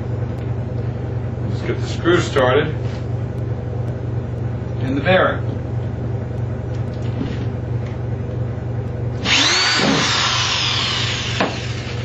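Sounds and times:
drill click: 9.2s - 12.0s
power drill whine: 9.2s - 12.0s.

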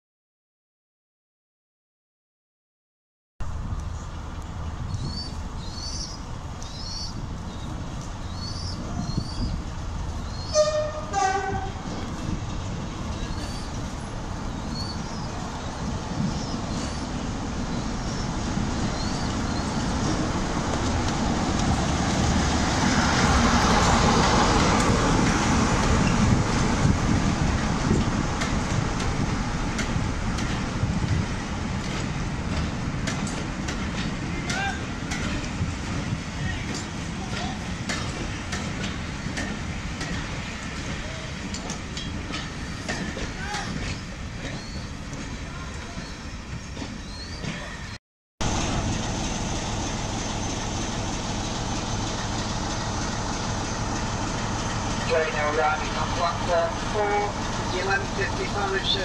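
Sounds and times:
wheels rumbling on rail: 3.4s - 59.0s
two-tone locomotive horn: 10.5s - 11.9s
wheels clicking over rail joints: 18.8s - 47.7s.

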